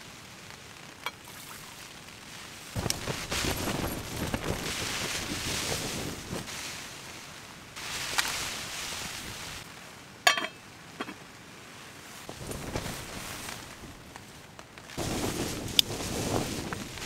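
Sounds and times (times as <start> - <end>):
rustling and handling: 2.8 - 6.9
metal lid clinking on pot: 10.3 - 11.2.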